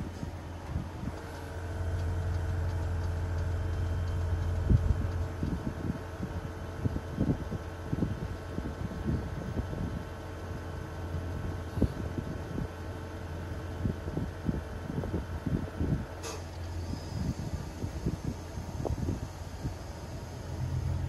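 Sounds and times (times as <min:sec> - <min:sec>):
irregular low thumps: 0:00.0 - 0:06.3
low rumble: 0:00.0 - 0:07.4, 0:16.9 - 0:21.0
compressor humming with whine: 0:00.0 - 0:21.0.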